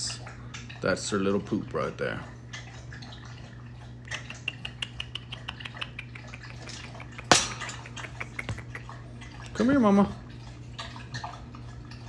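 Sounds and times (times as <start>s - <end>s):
steady low hum: 0.0s - 12.0s
wire cage bars rattling: 6.6s - 8.1s.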